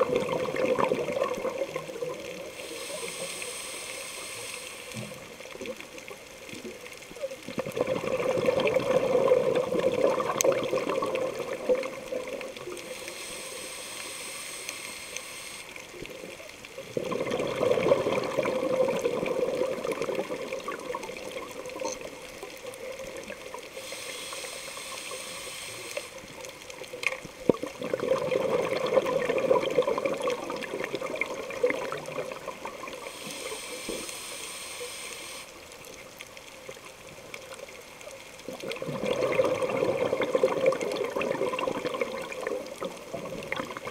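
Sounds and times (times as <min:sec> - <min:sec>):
exhaled bubbles gurgling: 0:00.0 - 0:43.9
regulator inhale hiss: 0:02.4 - 0:05.4, 0:12.8 - 0:16.0, 0:23.6 - 0:26.5, 0:32.9 - 0:35.6.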